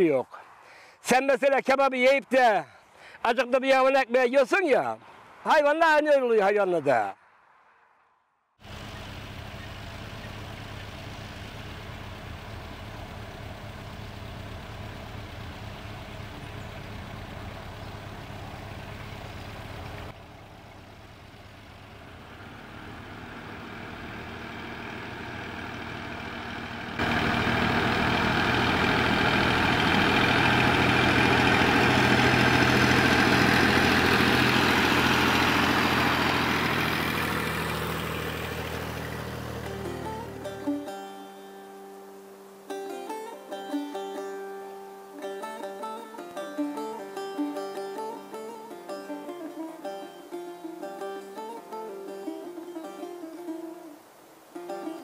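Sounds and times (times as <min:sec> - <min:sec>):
tractor hauling trailer: 0:08.6 - 0:41.0
tractor diesel engine running: 0:08.6 - 0:41.4.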